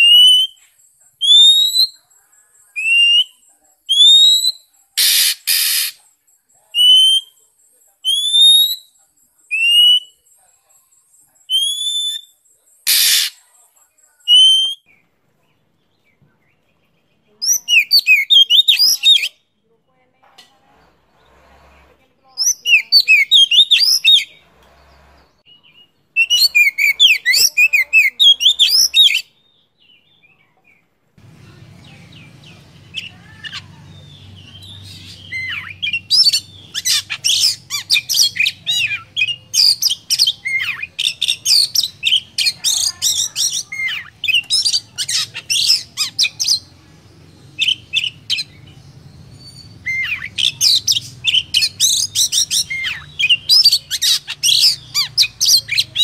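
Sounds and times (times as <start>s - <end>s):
bird singing: 0.0s - 56.0s.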